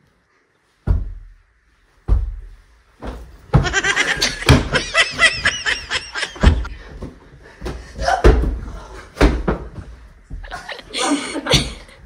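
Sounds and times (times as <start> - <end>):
cushions thudding: 2.0 - 10.6
high-pitched laughter: 3.6 - 6.7.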